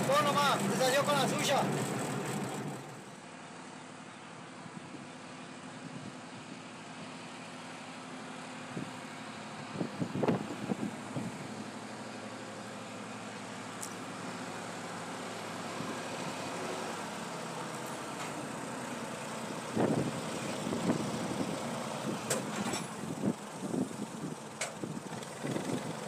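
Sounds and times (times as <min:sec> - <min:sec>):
tractor diesel engine running: 0:00.0 - 0:26.0
wind buffeting microphone: 0:09.7 - 0:11.4, 0:19.7 - 0:21.6.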